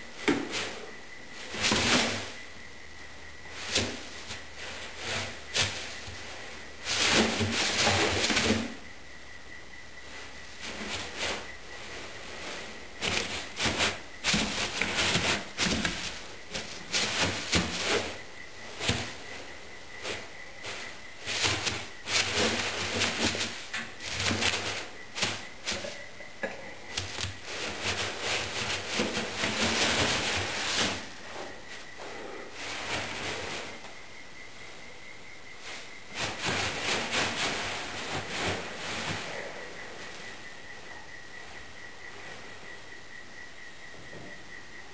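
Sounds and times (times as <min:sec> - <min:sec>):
polystyrene beads rustling: 0:26.9 - 0:31.3.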